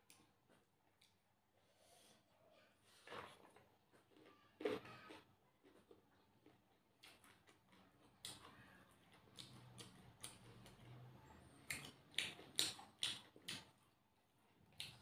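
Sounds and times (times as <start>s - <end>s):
wet clicks and smacks of eating: 6.5s - 11.0s, 11.6s - 13.9s, 14.7s - 15.0s.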